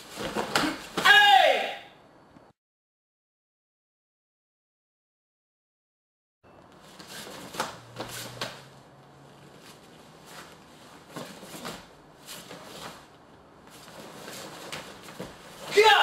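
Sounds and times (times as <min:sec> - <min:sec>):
bare feet thudding on mats: 0:07.0 - 0:08.7.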